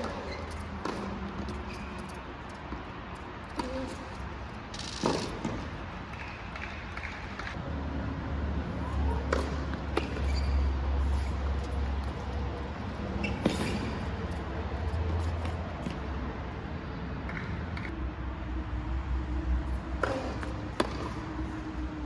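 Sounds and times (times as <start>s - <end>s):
tennis ball struck and bouncing: 0.0s - 4.1s, 4.7s - 7.6s, 9.2s - 10.4s, 20.0s - 21.3s.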